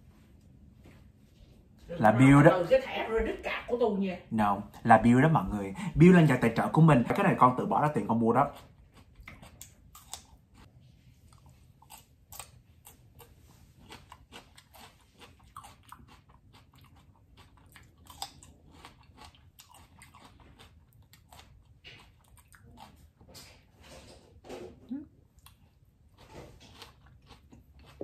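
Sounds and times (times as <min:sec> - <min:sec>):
crunchy chewing: 0:07.9 - 0:24.2, 0:25.2 - 0:28.0.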